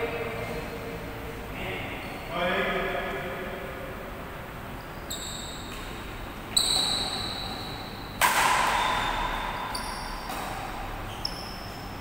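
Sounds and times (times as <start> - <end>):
rackets hitting shuttlecock: 8.1 - 11.1.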